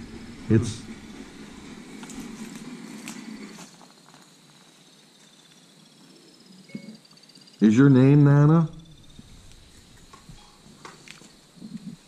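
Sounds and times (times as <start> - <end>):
low rustling noise: 0.0 - 4.8, 8.6 - 12.0
night insects trilling: 0.0 - 12.0.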